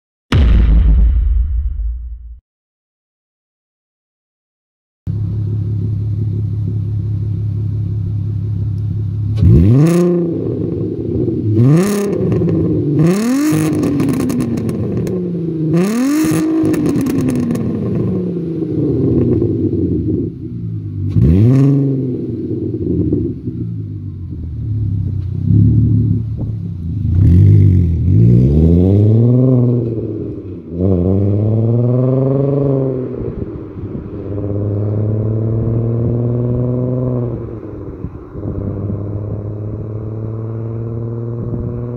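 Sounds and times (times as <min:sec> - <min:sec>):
car engine idling and revving: 0:05.1 - 0:41.9
car pulling away through gears: 0:24.4 - 0:41.9.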